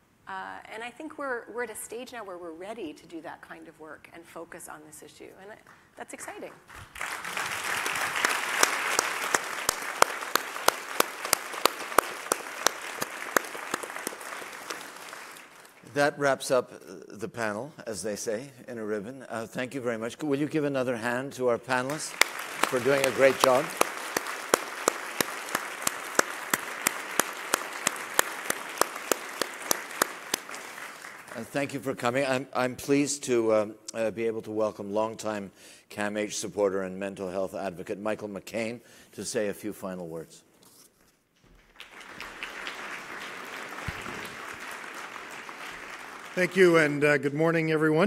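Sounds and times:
loud clapper near microphone: 6.5s - 15.9s, 21.8s - 31.8s, 41.5s - 47.1s
audience applauding: 6.8s - 15.9s, 21.7s - 31.8s, 41.6s - 47.3s.

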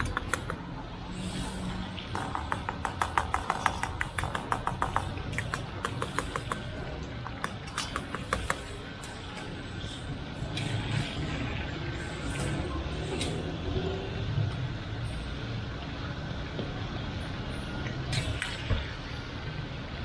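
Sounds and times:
low rumble of street traffic: 0.0s - 20.0s.

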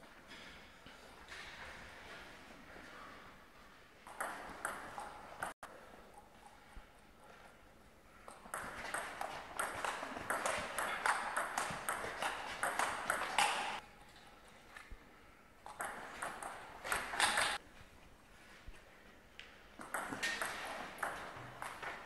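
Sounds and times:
ball bouncing on table: 4.1s - 5.5s, 8.3s - 13.8s, 15.7s - 17.6s, 19.8s - 22.0s
table tennis ball clicking off bats: 4.1s - 5.5s, 8.3s - 13.8s, 15.7s - 17.6s, 19.8s - 22.0s.

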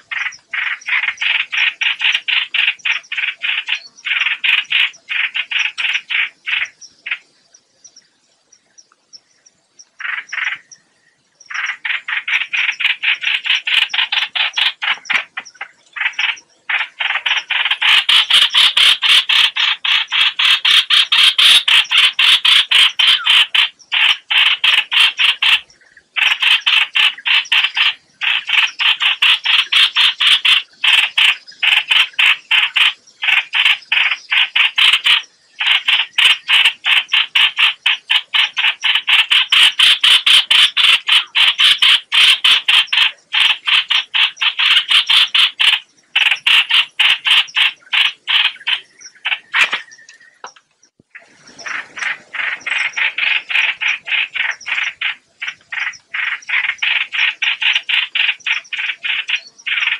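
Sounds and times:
recorded bird distress calls: 0.0s - 59.9s.

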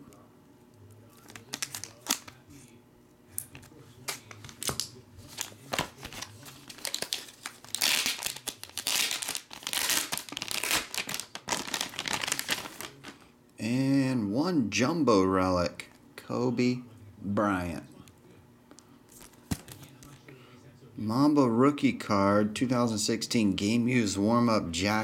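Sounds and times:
foil wrapper crinkling and tearing: 1.1s - 2.4s, 4.0s - 13.2s.

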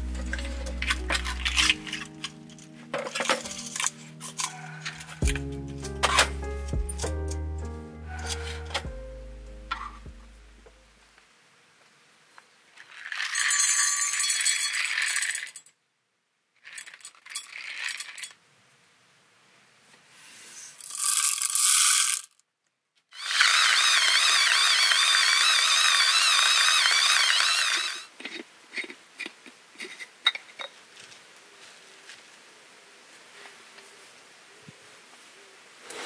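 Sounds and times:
coffee beans rattling in cup: 12.8s - 15.7s, 16.6s - 18.4s, 20.8s - 22.3s, 23.2s - 30.6s
electric coffee grinder whining: 23.2s - 28.1s.

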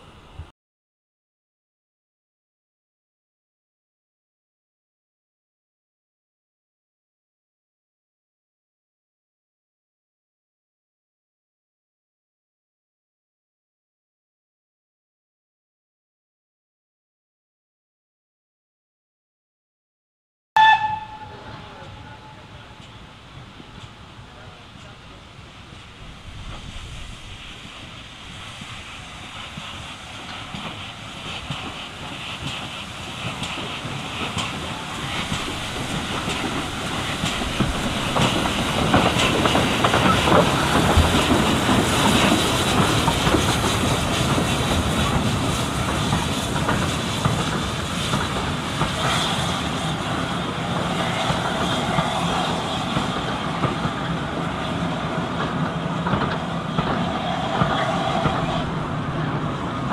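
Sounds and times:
steam locomotive passing: 20.6s - 59.9s
train wheels clattering over rail joints: 29.5s - 58.6s.

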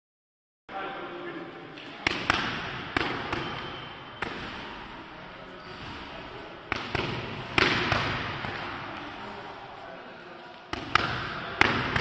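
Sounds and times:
punches hitting focus mitts: 2.0s - 3.6s, 6.7s - 8.8s, 10.7s - 12.0s.

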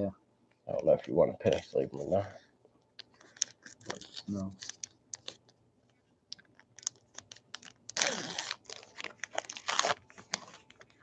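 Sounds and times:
wrapper crinkling: 3.0s - 5.4s, 6.3s - 11.0s.

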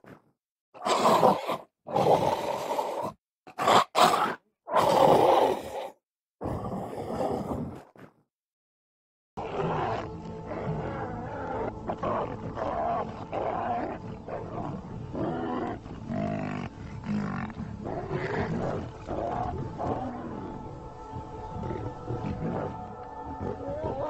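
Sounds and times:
lions calling: 9.4s - 20.6s, 21.5s - 24.0s.

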